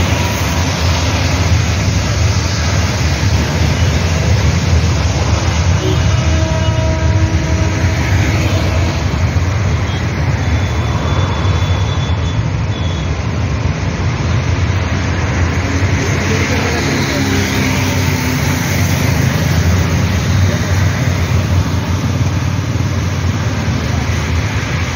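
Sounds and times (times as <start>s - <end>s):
bus passing close by: 0.0s - 24.9s
traffic rumble: 0.0s - 24.9s.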